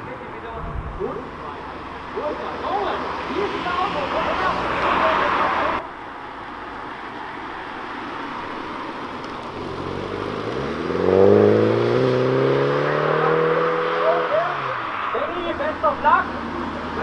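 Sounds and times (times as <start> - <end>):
car engine accelerating hard: 9.6 - 17.0.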